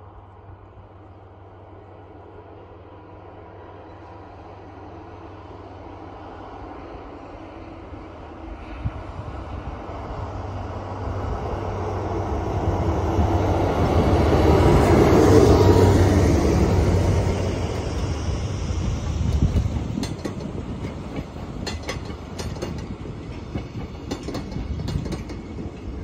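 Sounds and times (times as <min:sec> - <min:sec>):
diesel locomotive passing: 0:00.0 - 0:26.0
wagons rolling on rails: 0:19.2 - 0:26.0.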